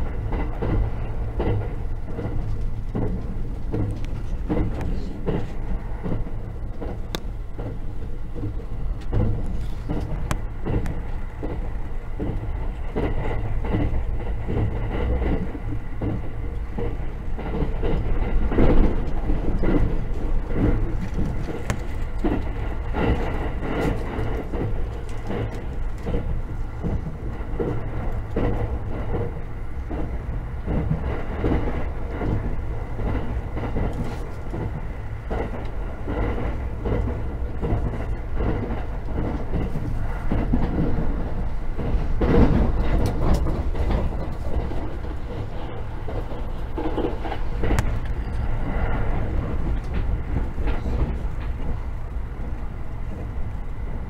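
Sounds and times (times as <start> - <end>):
train interior rumble: 0.0 - 54.0
wheels clattering on rails: 0.0 - 54.0.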